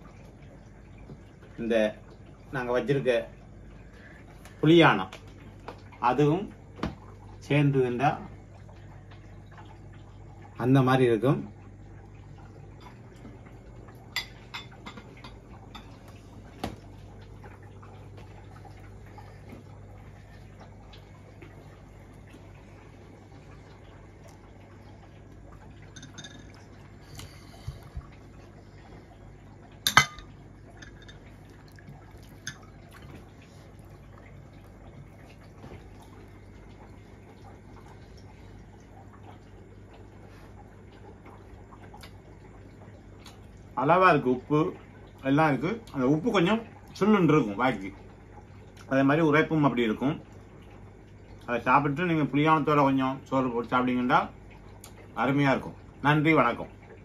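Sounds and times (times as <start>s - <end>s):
steady low hum: 0.0s - 52.3s
water trickling and dripping: 0.0s - 57.0s.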